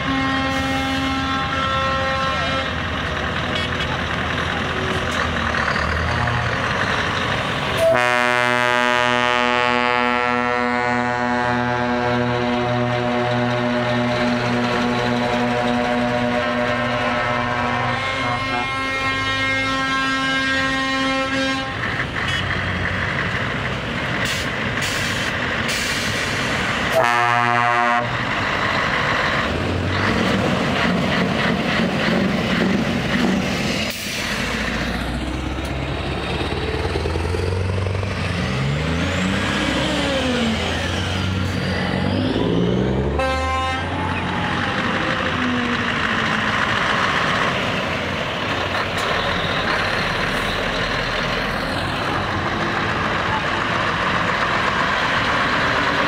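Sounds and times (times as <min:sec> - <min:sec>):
truck air horn blast: 0:00.0 - 0:02.8, 0:07.8 - 0:22.4, 0:26.9 - 0:28.2, 0:43.1 - 0:44.0
heavy trucks driving past: 0:00.0 - 0:56.0.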